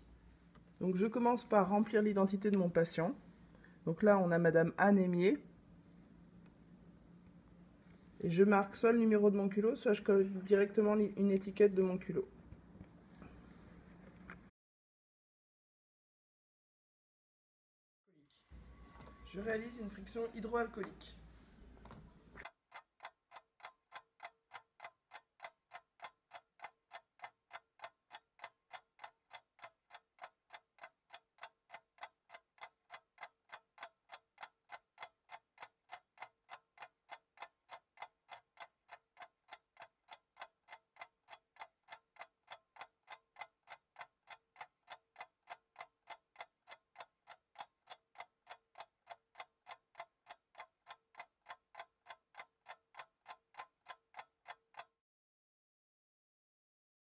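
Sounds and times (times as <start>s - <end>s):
clock-like timer ticking: 22.4s - 54.9s.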